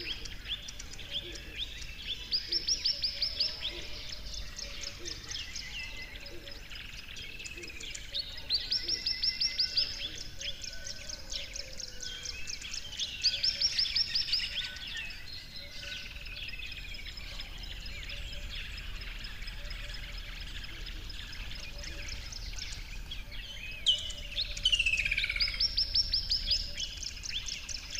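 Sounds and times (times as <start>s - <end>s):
quiet bird chirping: 0.0s - 27.9s.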